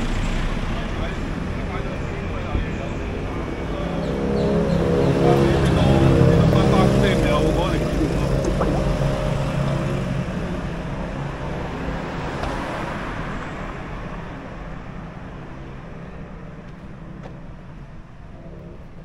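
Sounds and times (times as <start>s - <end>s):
vehicle engine rumbling: 0.0s - 12.2s.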